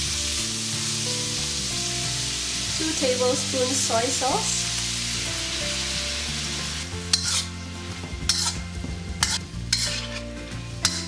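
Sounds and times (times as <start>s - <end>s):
hot pan sizzling: 0.0s - 11.0s
metal spatula scraping wok: 6.2s - 11.0s.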